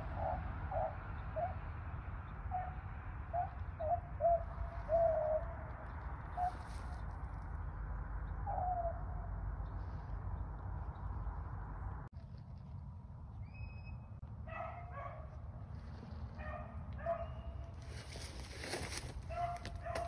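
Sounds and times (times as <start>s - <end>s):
hounds baying in the distance: 0.0s - 7.2s, 8.1s - 11.0s, 14.3s - 20.0s.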